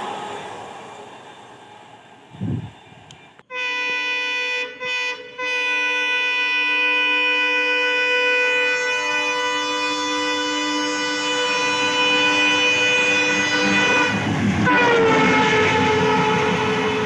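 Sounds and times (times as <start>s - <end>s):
train rumble: 0.0s - 3.6s, 7.5s - 17.0s
locomotive horn blasts: 3.5s - 17.0s.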